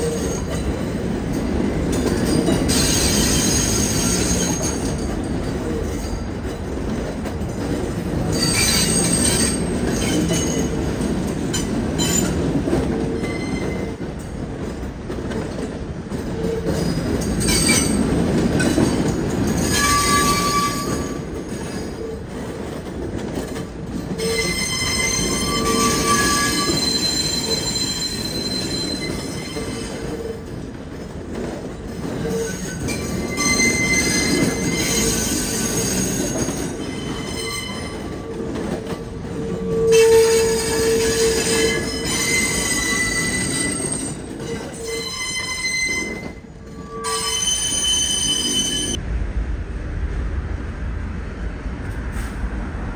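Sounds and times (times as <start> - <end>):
subway train rumble: 0.0 - 52.9
wheel squeal: 8.3 - 10.7, 13.2 - 13.9, 19.6 - 22.1, 24.2 - 30.0, 32.2 - 38.2, 39.4 - 49.0.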